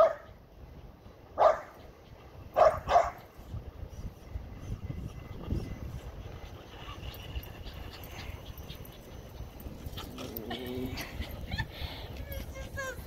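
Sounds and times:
steady low rumble: 0.3s - 13.0s
dog whining: 5.4s - 11.7s.

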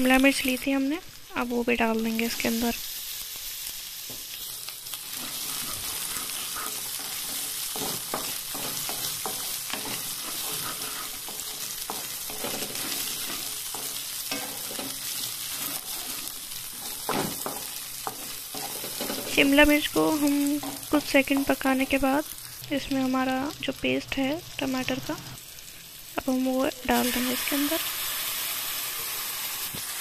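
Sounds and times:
vegetables sizzling in hot oil: 0.0s - 30.0s
wooden spatula scraping a pan: 5.0s - 21.9s.

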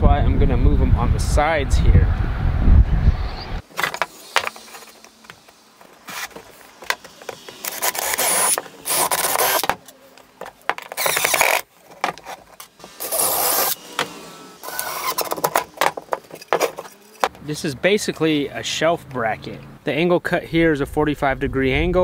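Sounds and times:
cordless drill boring into wood: 3.8s - 9.9s, 10.8s - 11.7s, 12.8s - 15.8s
wood and tools knocking on workbench: 10.4s - 10.9s, 15.3s - 17.4s.

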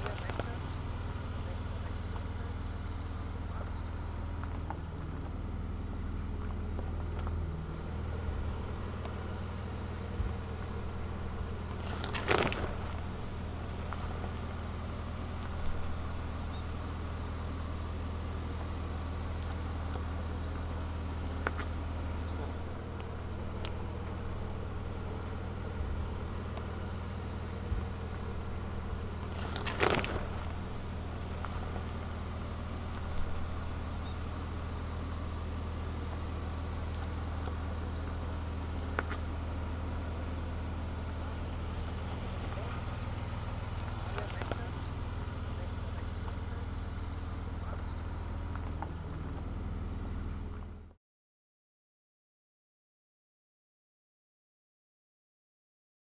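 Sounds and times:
rocks cracking under tyres: 0.0s - 1.0s, 6.3s - 16.2s, 21.3s - 34.9s, 36.0s - 40.2s, 41.1s - 46.0s
pickup engine running: 0.0s - 51.0s.

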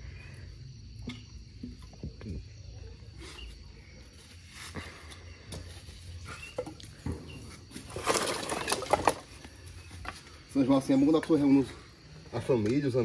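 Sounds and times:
firewood logs knocking: 6.4s - 10.1s.

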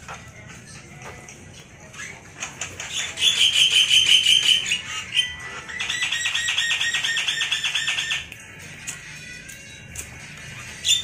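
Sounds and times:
songbird singing: 2.0s - 8.4s.

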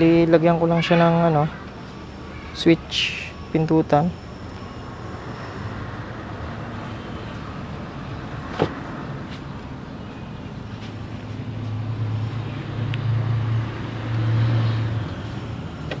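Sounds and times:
passing vehicle engine hum: 3.1s - 16.0s.

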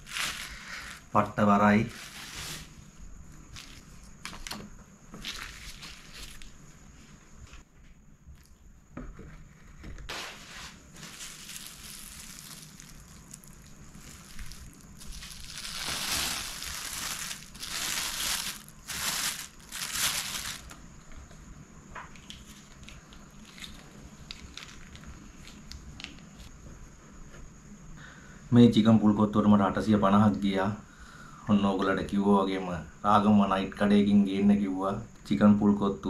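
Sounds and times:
plastic bag crinkling: 0.0s - 1.2s, 1.8s - 2.7s, 5.2s - 6.5s, 10.1s - 20.8s, 22.6s - 25.6s.

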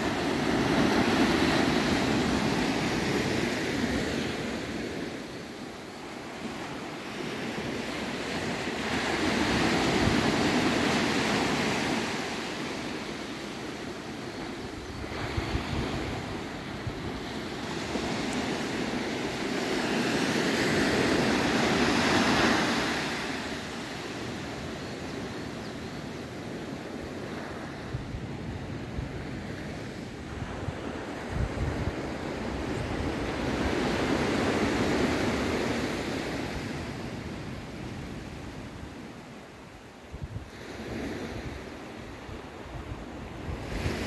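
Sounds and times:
small waves washing on beach: 0.0s - 44.0s.

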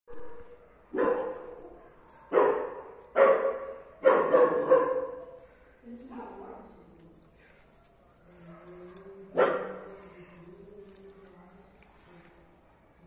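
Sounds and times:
dog barking: 0.4s - 5.4s, 9.3s - 9.9s.

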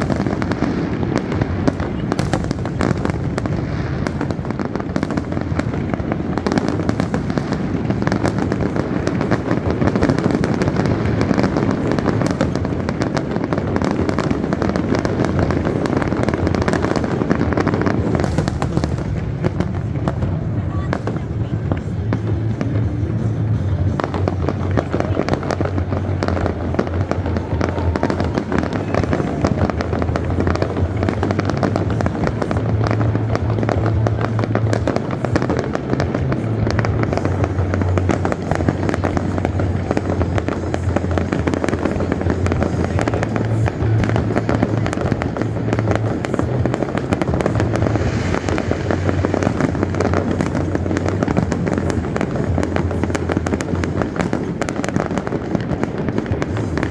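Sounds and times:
fireworks crackling and banging: 0.0s - 56.9s
low rumble: 15.1s - 54.7s.

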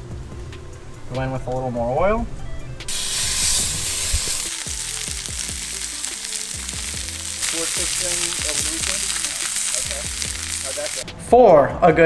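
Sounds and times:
fish sizzling in hot oil: 2.9s - 11.0s.

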